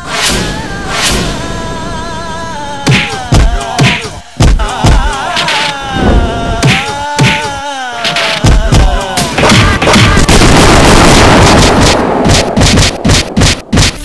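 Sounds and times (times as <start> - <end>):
person singing: 0.0 - 10.3
drum strikes: 2.9 - 5.7, 6.6 - 10.5, 11.2 - 14.0
distorted clatter of rapid hits: 8.1 - 14.0.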